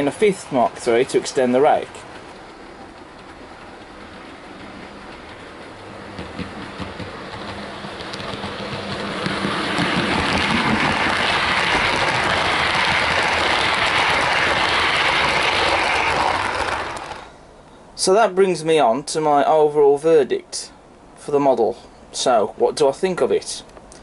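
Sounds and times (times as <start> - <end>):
model train wheels rumbling on rail: 0.0 - 18.4.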